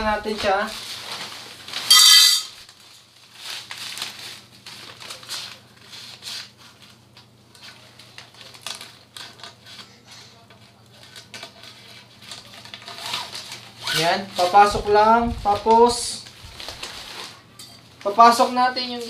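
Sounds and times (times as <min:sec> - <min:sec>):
fabric rustling and crinkling: 0:00.0 - 0:09.8, 0:10.6 - 0:19.0
high-pitched tone: 0:01.9 - 0:02.5.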